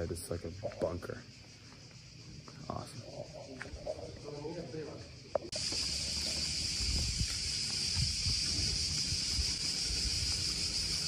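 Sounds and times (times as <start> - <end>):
high-pitched hiss: 0.0 - 11.0
wind buffeting microphone: 6.4 - 11.0.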